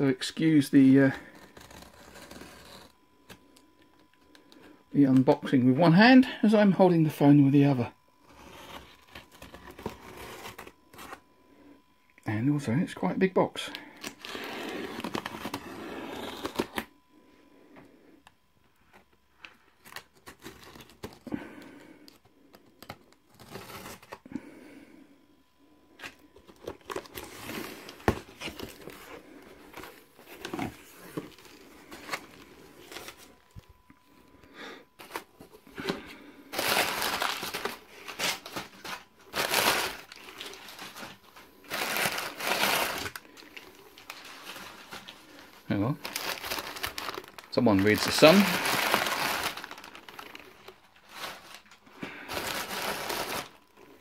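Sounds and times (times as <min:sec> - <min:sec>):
packing tape tearing: 0:14.0 - 0:16.9, 0:36.5 - 0:45.2, 0:46.0 - 0:53.6
crumpled newspaper rustling: 0:35.0 - 0:54.0.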